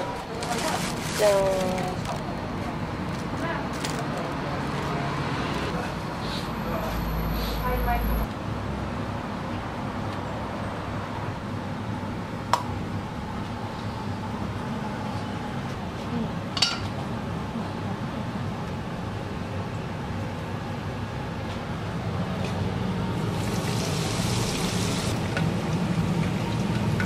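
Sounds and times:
tableware clinking: 16.6s - 16.9s.

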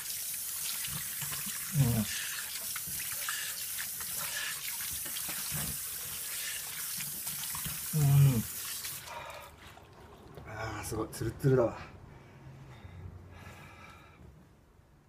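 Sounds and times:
tap water running into sink: 0.0s - 9.0s
water splashing on face: 0.0s - 10.4s
short vocal sound: 8.0s - 8.5s.

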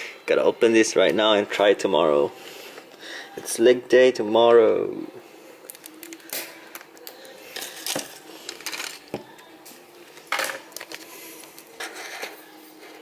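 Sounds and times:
plastic wrap crinkling: 5.6s - 9.5s, 10.2s - 11.8s.

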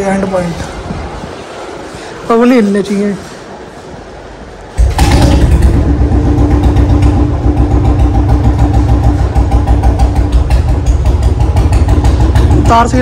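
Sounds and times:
motorcycle engine idling: 4.8s - 13.0s.

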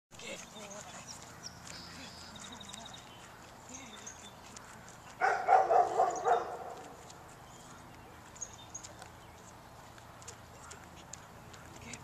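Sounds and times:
puppy barking: 5.2s - 6.9s.

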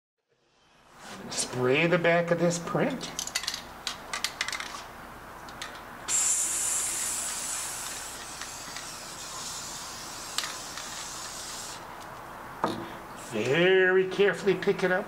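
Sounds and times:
aerosol can spraying hiss: 6.1s - 11.8s.

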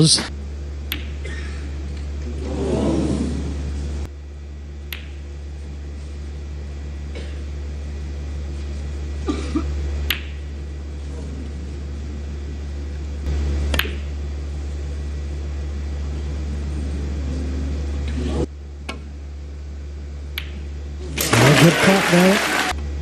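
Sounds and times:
steady low hum: 0.0s - 23.0s
snooker balls clicking: 0.8s - 1.3s, 10.0s - 10.5s, 13.7s - 14.1s, 20.3s - 22.0s.

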